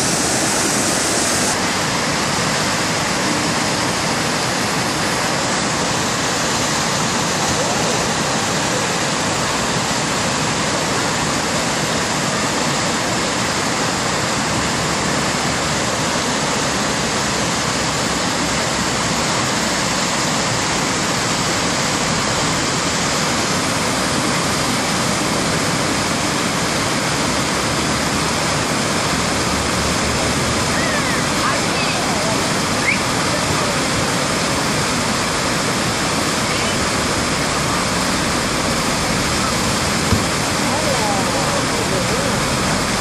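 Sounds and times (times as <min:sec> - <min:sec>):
whitewater rapids rushing: 0:00.0 - 0:43.0.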